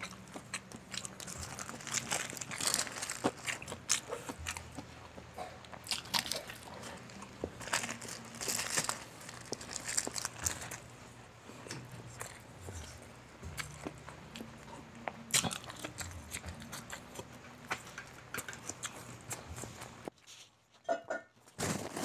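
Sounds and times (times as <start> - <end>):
crunchy chewing: 0.0 - 20.2
paper wrapper crinkling: 1.0 - 3.7, 6.0 - 10.9.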